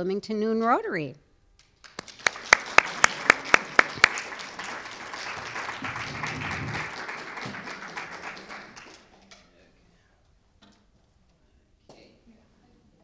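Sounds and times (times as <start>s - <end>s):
loud close hand claps: 1.7s - 9.2s
small audience applauding: 1.8s - 9.4s.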